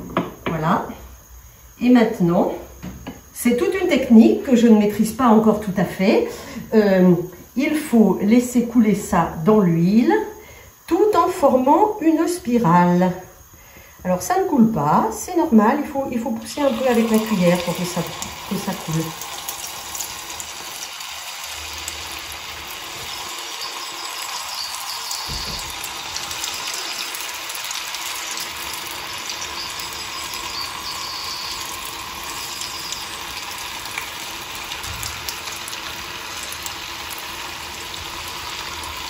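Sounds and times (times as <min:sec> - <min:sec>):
batter sizzling in hot oil: 0:16.2 - 0:39.0.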